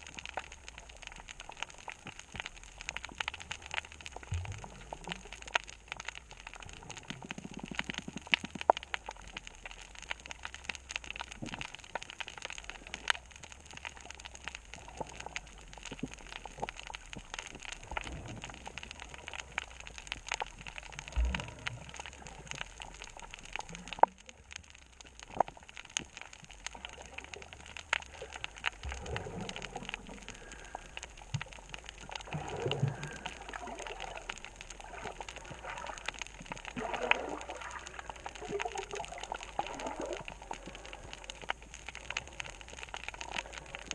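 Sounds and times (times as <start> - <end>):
underwater crackle of clicks: 0.0 - 43.9
low rushing water gurgles: 17.7 - 24.6, 26.8 - 43.9.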